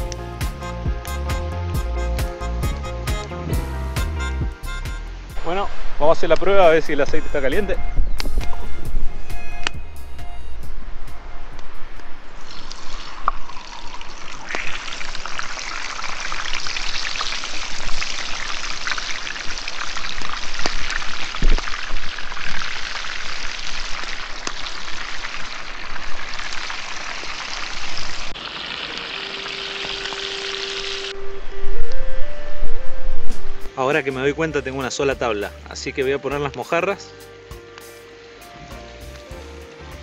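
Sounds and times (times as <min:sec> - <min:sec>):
frying oil sizzling and crackling: 0:12.3 - 0:31.2, 0:35.1 - 0:40.0.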